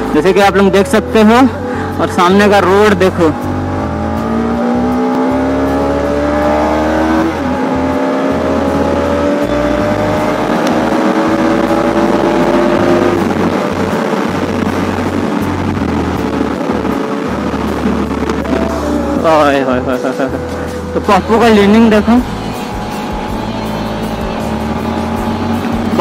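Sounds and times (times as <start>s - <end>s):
motorcycle engine accelerating: 1.0s - 26.0s
wind noise: 10.0s - 19.9s.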